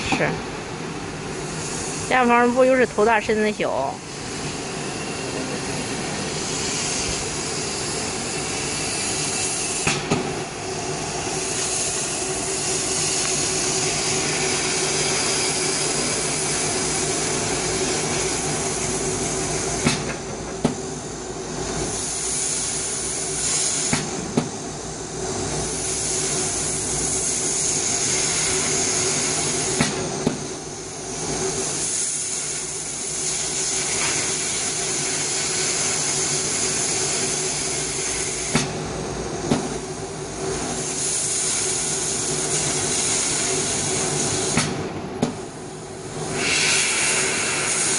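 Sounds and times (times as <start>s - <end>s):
laser cutting machine hissing: 0.0s - 47.9s.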